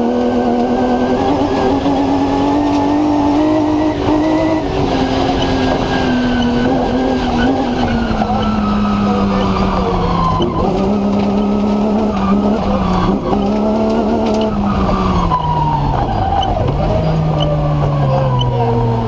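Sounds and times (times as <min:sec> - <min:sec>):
racing car engine revving: 0:00.0 - 0:19.0.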